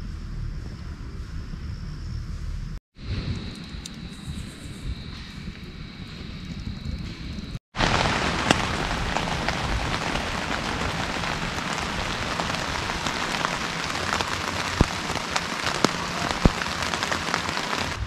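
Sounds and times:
rain falling on a tent: 7.7s - 18.0s.

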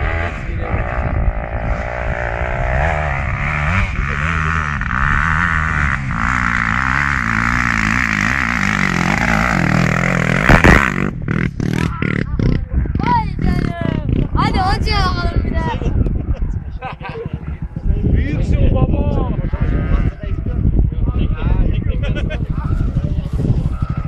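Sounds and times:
dirt bike engines revving: 0.0s - 24.0s
sharp thump: 10.4s - 11.1s.

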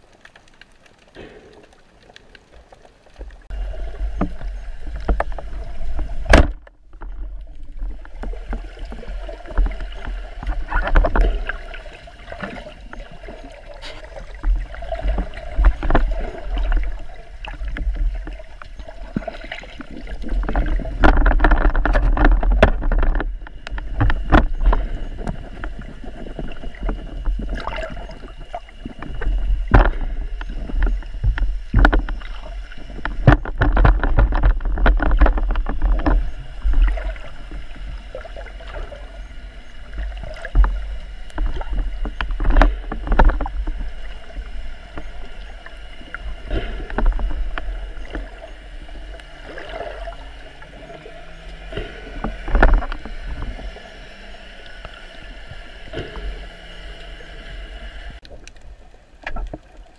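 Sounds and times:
muffled underwater water rushing: 0.0s - 59.9s
sharp knocks and clicks: 20.4s - 25.8s, 28.9s - 37.1s.

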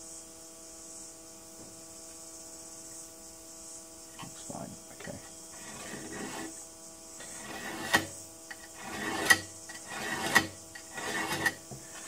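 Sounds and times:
scriber scraping steel: 5.0s - 12.0s.

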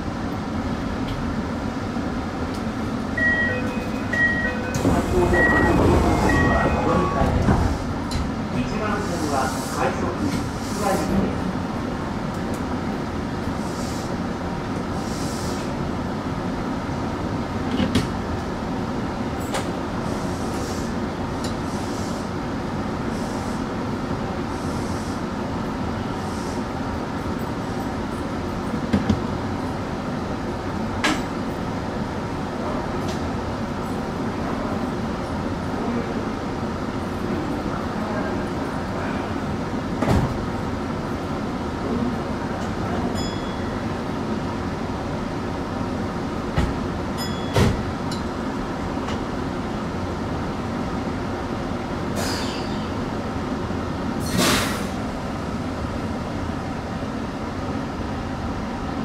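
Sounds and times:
train wheels and motors rumbling: 0.0s - 59.0s.

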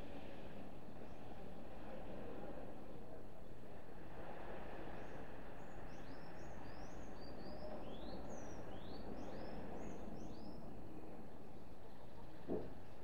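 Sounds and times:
gentle surf on beach: 0.0s - 13.0s
songbird chirping: 5.6s - 10.7s.

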